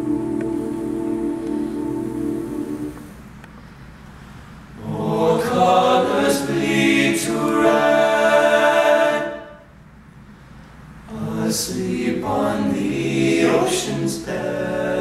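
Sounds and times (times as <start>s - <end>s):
male a cappella group singing: 0.0s - 3.2s, 4.8s - 9.6s, 11.1s - 15.0s.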